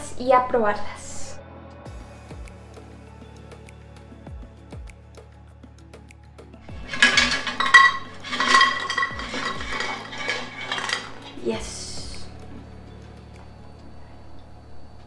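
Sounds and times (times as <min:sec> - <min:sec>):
background music: 0:00.0 - 0:15.0
fries rattling onto a plate: 0:06.7 - 0:11.4.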